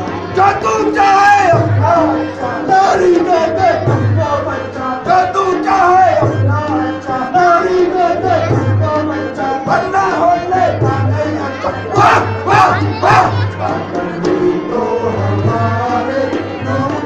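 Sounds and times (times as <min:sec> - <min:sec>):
instrumental accompaniment: 0:00.0 - 0:17.0
person singing: 0:00.0 - 0:17.0.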